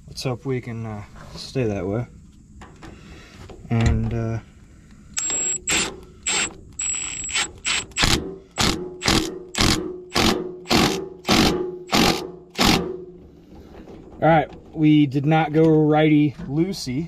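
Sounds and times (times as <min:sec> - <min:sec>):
tool ratcheting bursts: 0:05.2 - 0:12.9.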